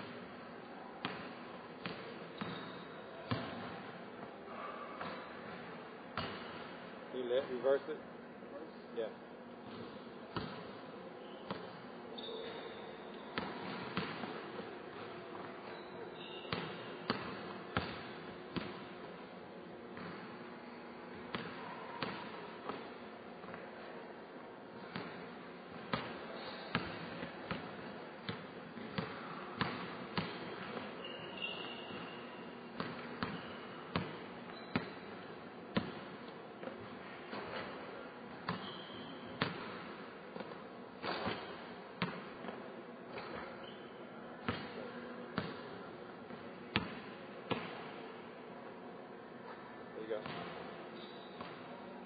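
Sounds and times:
shoe squeaks: 2.4s - 3.1s, 12.1s - 13.4s, 15.6s - 17.0s, 31.0s - 32.6s, 33.4s - 33.8s, 34.5s - 35.1s, 38.6s - 39.4s, 43.5s - 44.0s, 50.9s - 51.6s.

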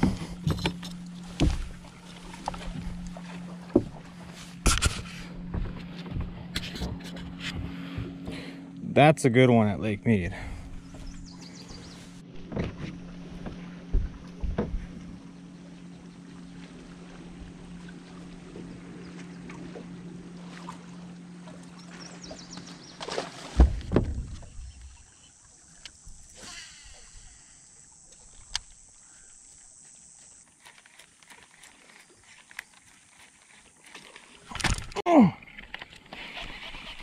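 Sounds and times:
electric trolling motor humming: 0.0s - 35.0s
loud thump: 23.6s - 24.6s.

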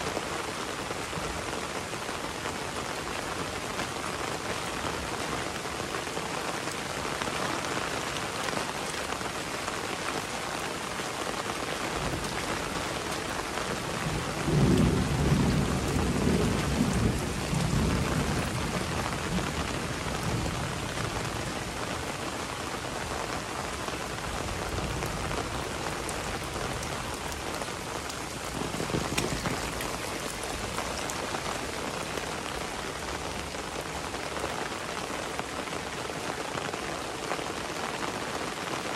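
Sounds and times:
heavy rain falling: 0.0s - 38.9s
thunder rumbling: 13.8s - 21.4s, 24.3s - 33.8s.

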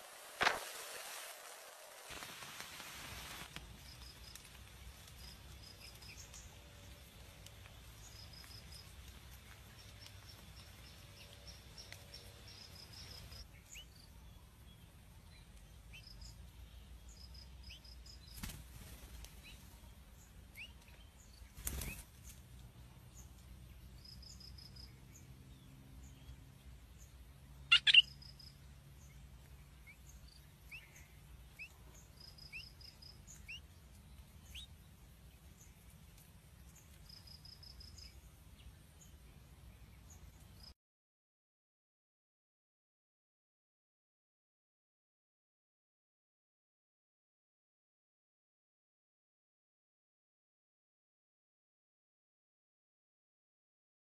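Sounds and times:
bird wings flapping: 0.0s - 6.0s, 18.3s - 19.4s, 21.5s - 22.4s
short high chirps: 27.7s - 28.1s.

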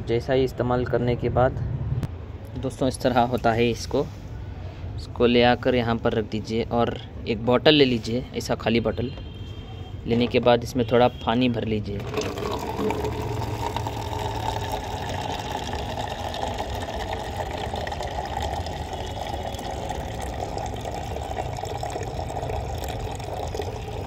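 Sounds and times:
water pouring into plastic jar: 12.0s - 24.0s.

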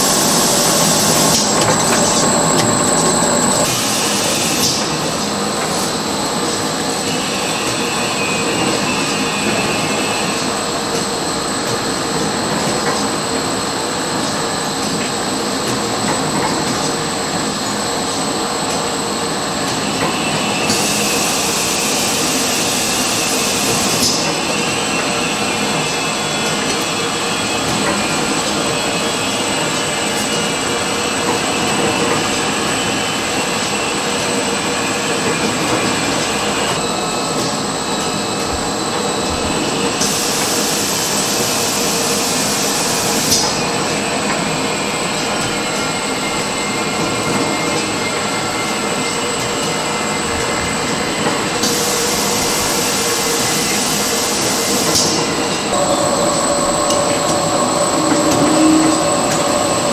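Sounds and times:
hiss: 0.0s - 6.0s, 19.7s - 30.6s, 39.7s - 43.8s, 50.8s - 59.9s
machinery clattering with high whine: 0.0s - 59.9s.

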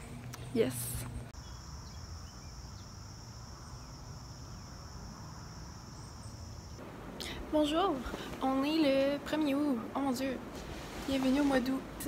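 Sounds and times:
insects trilling: 1.4s - 6.9s.

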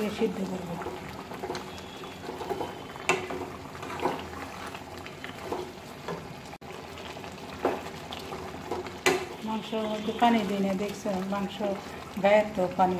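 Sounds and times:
wooden spatula stirring: 0.0s - 6.4s, 7.0s - 12.4s
meat bubbling in a metal pan: 0.0s - 12.9s
sharp knocks and pops: 3.1s - 4.2s, 8.7s - 9.3s.

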